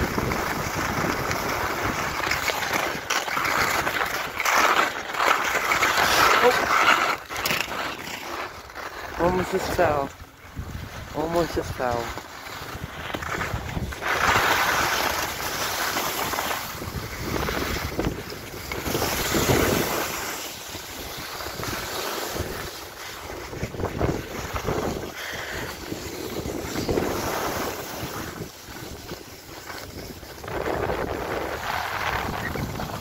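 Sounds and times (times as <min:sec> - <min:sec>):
wind buffeting microphone: 0:00.0 - 0:02.3, 0:16.7 - 0:20.0, 0:23.4 - 0:33.0
skis scraping on snow: 0:00.0 - 0:33.0.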